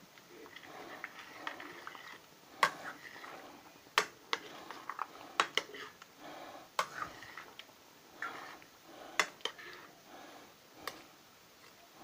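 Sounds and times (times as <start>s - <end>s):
stew sloshing: 0.3s - 6.0s.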